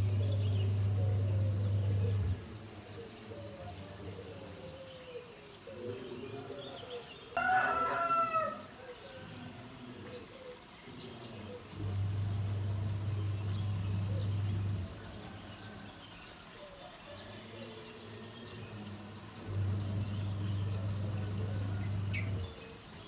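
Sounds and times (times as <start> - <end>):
steady low hum: 0.0 - 2.7, 11.7 - 15.3, 18.5 - 22.6
rooster crowing: 7.3 - 9.3, 15.0 - 16.7.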